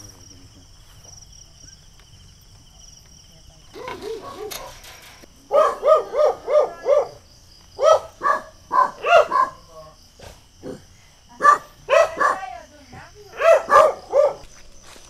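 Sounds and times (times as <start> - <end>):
crickets chirping: 0.0 - 15.0
dog barking: 3.8 - 7.2, 7.8 - 10.0, 11.4 - 12.6, 13.3 - 14.5.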